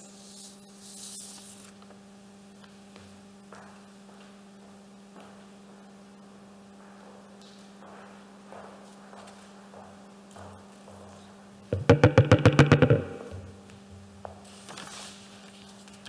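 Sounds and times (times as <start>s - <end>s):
electrical hum: 0.0s - 16.0s
soft footsteps: 6.7s - 11.9s.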